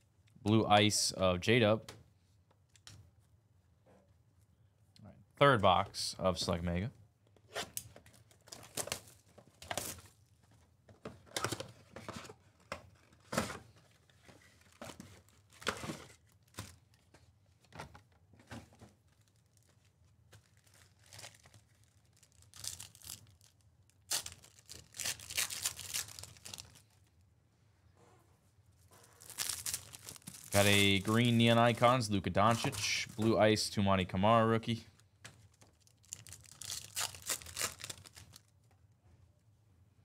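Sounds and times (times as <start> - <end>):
plastic wrappers tearing and crinkling: 19.1 - 26.9, 29.0 - 33.3, 35.4 - 38.5.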